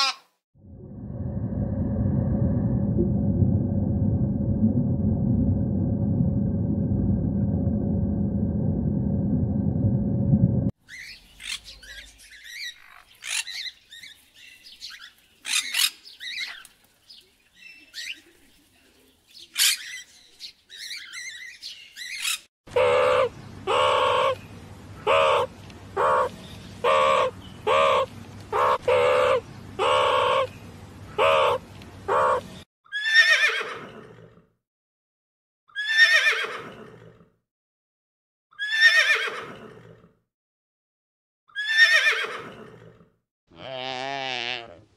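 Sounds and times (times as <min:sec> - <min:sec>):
steady low hum: 0:00.6 - 0:10.7
small birds chirping: 0:10.8 - 0:24.6.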